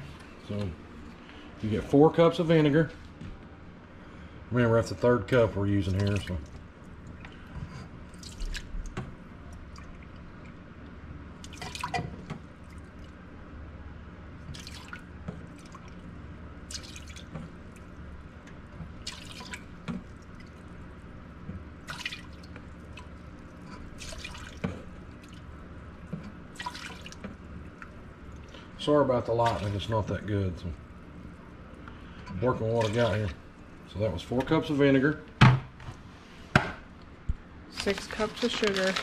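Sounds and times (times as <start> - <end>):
faint low hum: 0.0 - 39.0
liquid splashing and dripping: 5.8 - 13.2, 14.4 - 28.7, 29.3 - 30.2, 30.8 - 34.6.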